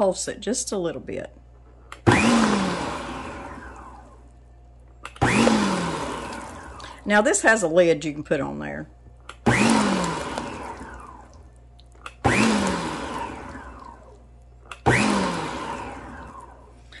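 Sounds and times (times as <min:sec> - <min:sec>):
stand mixer motor whining: 0:02.1 - 0:04.1, 0:05.2 - 0:07.0, 0:09.4 - 0:11.4, 0:12.2 - 0:16.8
dough hook churning dough: 0:05.2 - 0:06.9, 0:09.4 - 0:11.3, 0:12.2 - 0:14.1, 0:14.7 - 0:16.6.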